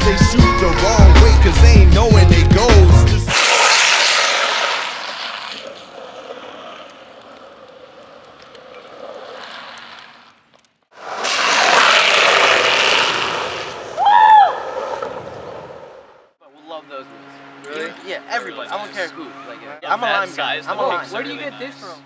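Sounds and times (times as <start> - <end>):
wheel squeal: 3.3 - 10.4
skateboard wheels sliding on asphalt: 3.3 - 16.3.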